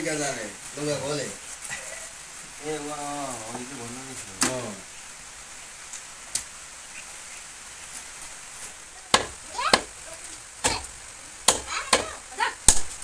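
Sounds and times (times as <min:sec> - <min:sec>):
knife chopping on wooden block: 0:09.2 - 0:09.9, 0:11.5 - 0:12.2.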